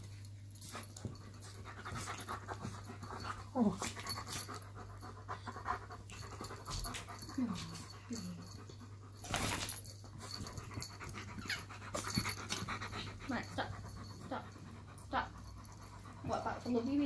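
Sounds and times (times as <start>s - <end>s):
dog panting: 0.6s - 9.3s, 9.9s - 17.0s
dog whining: 11.3s - 11.8s.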